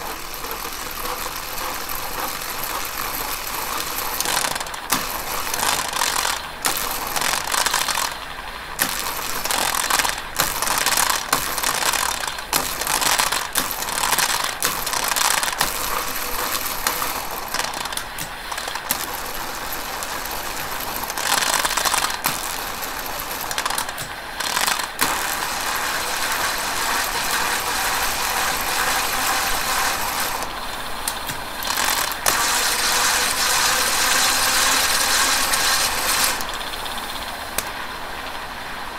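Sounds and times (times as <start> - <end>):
hub gears whirring: 0.0 - 38.9.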